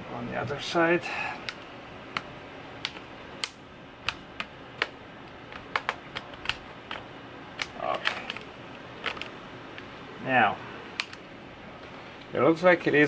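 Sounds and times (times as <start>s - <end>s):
sharp irregular clicks: 1.4s - 9.9s, 11.0s - 11.2s.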